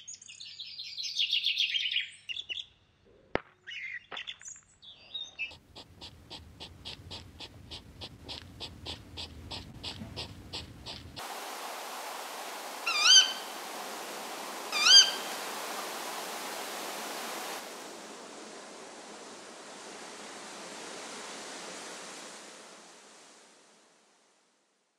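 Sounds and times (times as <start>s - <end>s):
owl calls: 5.5s - 11.2s, 12.8s - 16.6s
steady background hiss: 5.5s - 24.9s.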